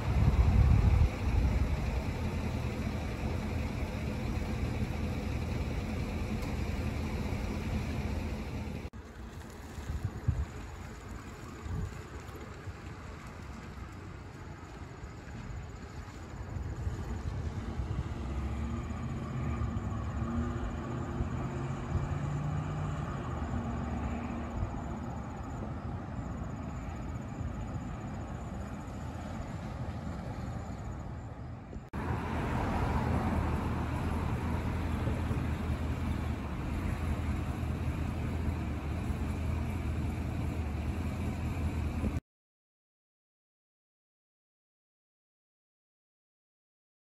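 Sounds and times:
traffic rumble: 0.0 - 42.2
vehicle engine running: 0.0 - 42.2.

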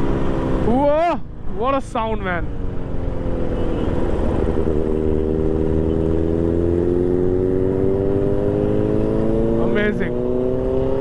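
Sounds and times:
motorcycle engine accelerating: 0.0 - 0.9, 2.6 - 11.0.

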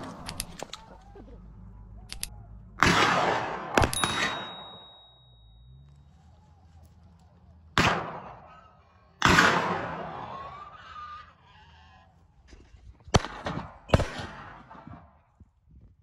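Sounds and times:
shotgun shots echoing: 2.8 - 5.0, 7.8 - 8.5, 9.2 - 10.2, 13.1 - 15.1.

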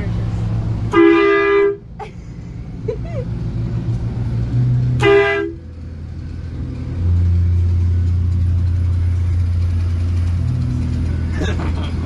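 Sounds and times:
bus engine droning: 0.0 - 12.0
horn blast: 0.9 - 1.8, 4.9 - 5.6.

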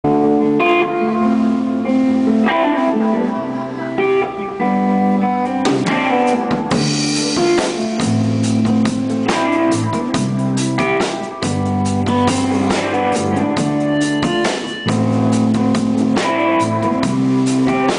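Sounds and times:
electric guitar and bass chords: 0.0 - 17.9
drum kit with cymbal crashes: 5.6 - 17.9.

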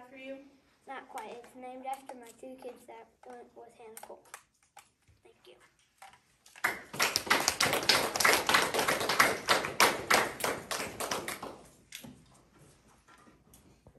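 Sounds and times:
small audience applauding: 6.6 - 11.8.

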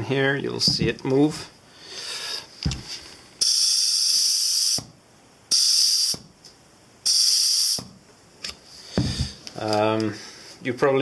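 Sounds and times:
compressed air hissing: 1.9 - 4.9, 5.5 - 6.3, 7.0 - 8.0.

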